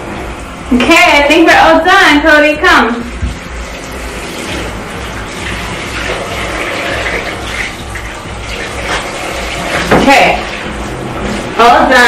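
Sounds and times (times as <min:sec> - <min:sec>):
water running from a tap: 0:02.7 - 0:12.0.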